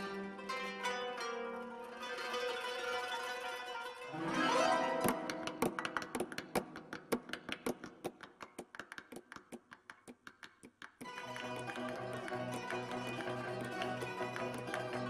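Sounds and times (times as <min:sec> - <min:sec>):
plucked qanun notes: 0:00.0 - 0:07.3, 0:11.1 - 0:15.0.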